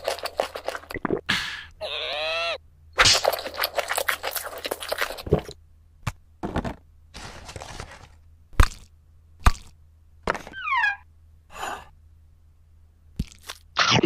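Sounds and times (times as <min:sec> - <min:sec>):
dense crackling and crunching: 0:03.0 - 0:05.6, 0:07.1 - 0:08.9.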